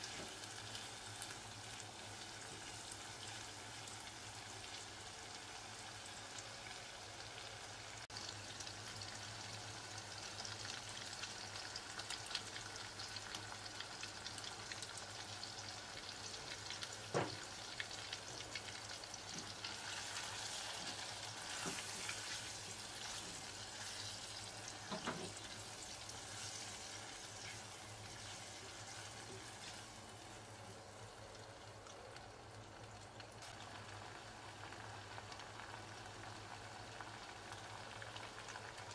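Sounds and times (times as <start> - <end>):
shrimp and onions sizzling: 0.0 - 38.9
spatula stirring and scraping: 19.3 - 30.0.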